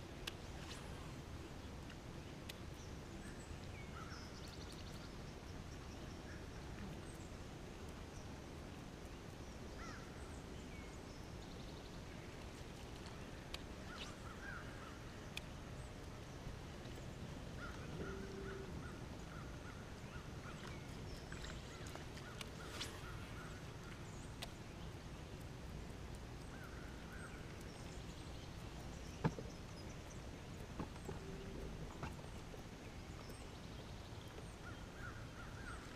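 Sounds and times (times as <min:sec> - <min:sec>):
low background hum: 0:00.0 - 0:35.9
faint bird chirps: 0:17.0 - 0:25.0.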